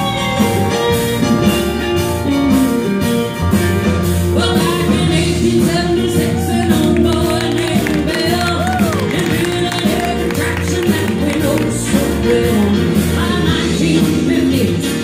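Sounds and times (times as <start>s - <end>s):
country band playing: 0.0s - 15.0s
woman singing: 4.3s - 15.0s.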